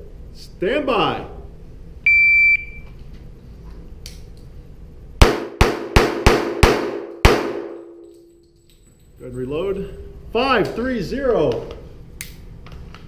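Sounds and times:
pistol shots ringing indoors: 0:05.2 - 0:09.1.

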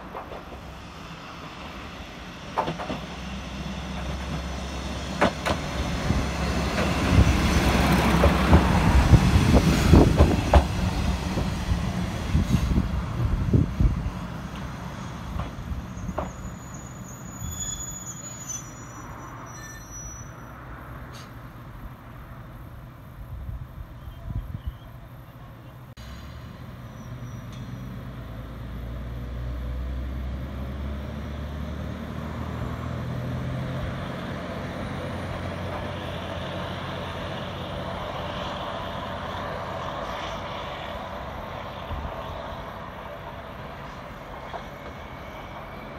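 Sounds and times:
wheel-on-rail noise: 0:00.0 - 0:20.3
diesel railcar engine hum: 0:00.0 - 0:45.9.

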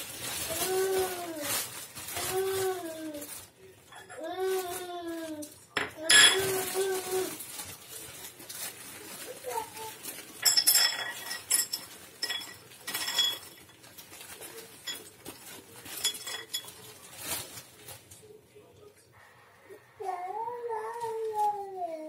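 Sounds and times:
plastic bag crinkling: 0:00.0 - 0:18.4
nuts clattering on a plate: 0:05.8 - 0:06.7, 0:10.4 - 0:17.0.

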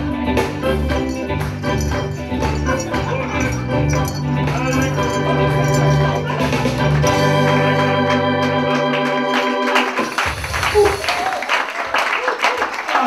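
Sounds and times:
organ playing held chords: 0:00.1 - 0:10.1
people clapping: 0:00.9 - 0:13.0.

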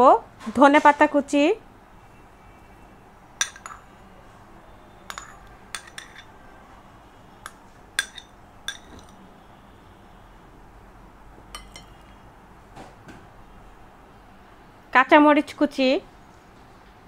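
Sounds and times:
spoon clinking against glass: 0:03.4 - 0:03.9, 0:05.1 - 0:06.3, 0:07.4 - 0:09.2, 0:11.5 - 0:12.2
spoon scraping bowl: 0:05.1 - 0:06.4, 0:07.4 - 0:09.2.

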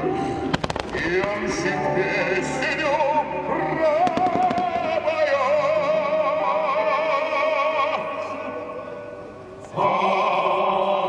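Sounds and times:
music over loudspeakers: 0:00.0 - 0:11.0
firework bangs: 0:00.5 - 0:01.7, 0:04.0 - 0:05.0.

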